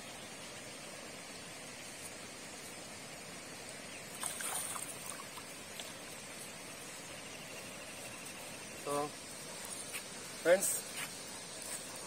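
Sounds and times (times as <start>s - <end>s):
steady outdoor hiss: 0.0s - 12.0s
fish splashing in water: 4.2s - 5.9s.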